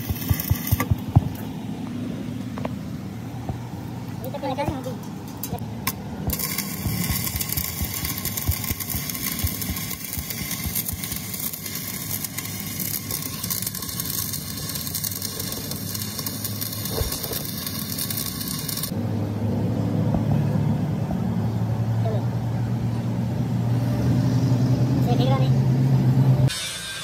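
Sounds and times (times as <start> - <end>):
welding arc crackling and sizzling: 0.0 - 1.6, 3.5 - 19.0.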